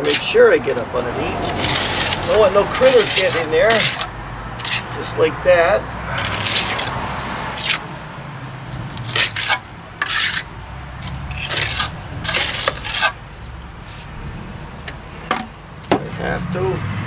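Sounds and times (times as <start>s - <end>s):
trowel scraping cement plaster: 0.0s - 5.2s, 6.1s - 7.9s, 9.0s - 13.2s.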